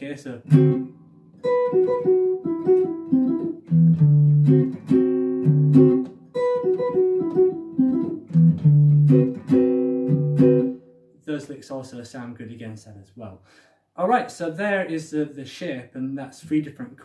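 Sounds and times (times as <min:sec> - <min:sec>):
clean jazz guitar phrase: 0:00.4 - 0:10.8.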